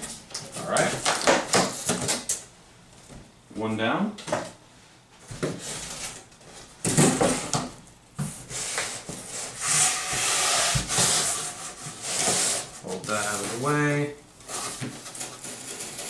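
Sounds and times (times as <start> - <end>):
cardboard flaps rustling and knocking: 6.8 - 9.2
box cutter scraping through cardboard: 8.5 - 13.7, 14.5 - 16.0.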